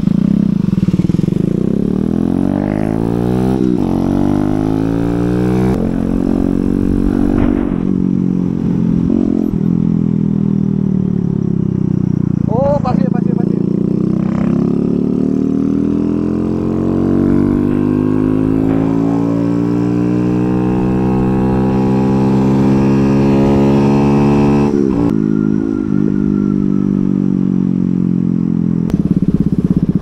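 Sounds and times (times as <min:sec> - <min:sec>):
motorcycle engine accelerating: 0:00.0 - 0:30.0.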